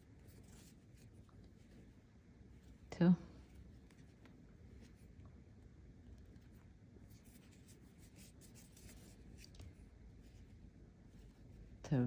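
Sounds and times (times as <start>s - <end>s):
crochet hook scratching yarn: 0.0s - 2.0s, 6.2s - 10.5s.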